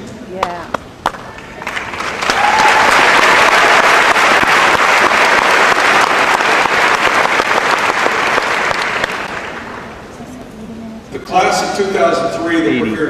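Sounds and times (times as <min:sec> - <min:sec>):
large audience applauding: 0:01.1 - 0:09.9.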